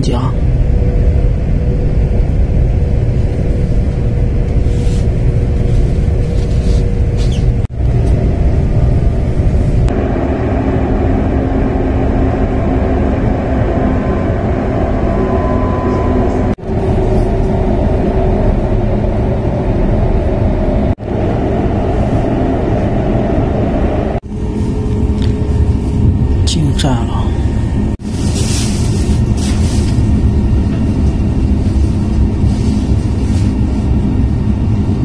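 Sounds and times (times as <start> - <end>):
faint hum: 0.0 - 35.0
train carriage rumble: 0.0 - 35.0.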